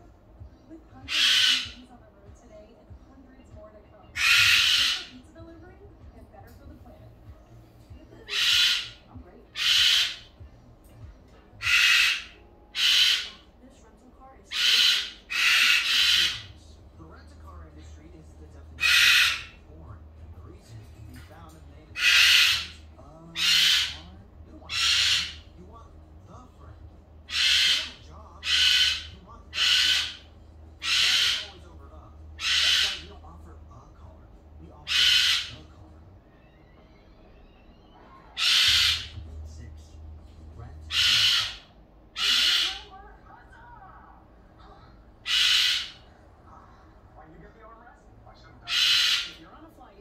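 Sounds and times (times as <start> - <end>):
cockatoo screaming: 1.1 - 1.8, 4.2 - 5.2, 8.3 - 10.3, 11.6 - 13.4, 14.5 - 16.5, 18.8 - 19.6, 21.9 - 24.1, 24.7 - 25.4, 27.3 - 31.6, 32.4 - 33.1, 34.8 - 35.5, 36.3 - 39.2, 40.9 - 42.9, 45.2 - 46.1, 48.7 - 49.4.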